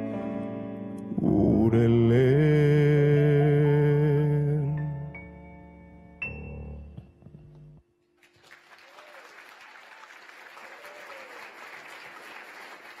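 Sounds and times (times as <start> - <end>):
audience applauding: 8.2 - 13.0.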